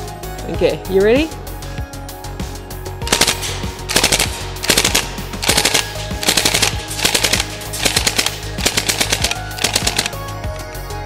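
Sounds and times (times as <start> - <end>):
airsoft gun firing bursts: 3.0 - 10.2.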